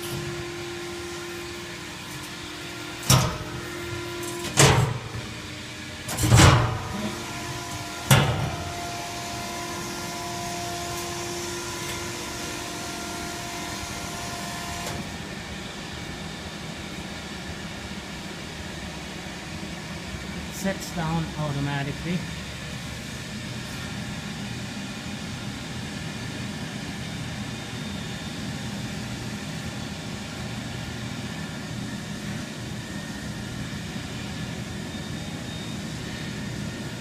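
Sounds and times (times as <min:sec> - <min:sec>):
machine hum: 0:00.0 - 0:26.4.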